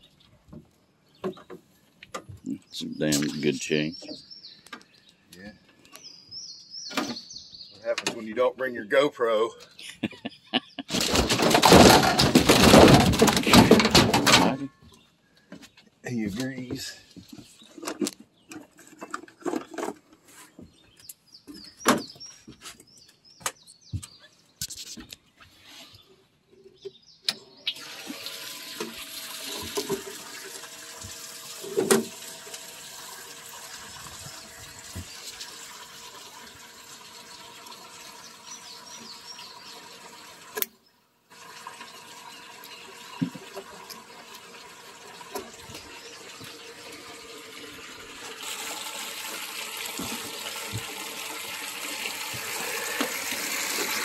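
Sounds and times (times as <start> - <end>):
running water rushing: 27.8 - 40.6, 41.3 - 54.0.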